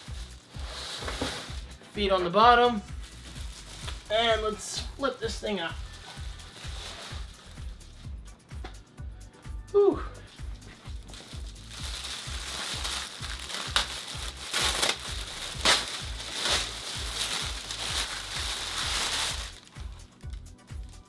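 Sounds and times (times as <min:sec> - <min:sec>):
plastic bag crinkling: 0:03.0 - 0:04.4, 0:05.7 - 0:07.5, 0:10.9 - 0:20.0.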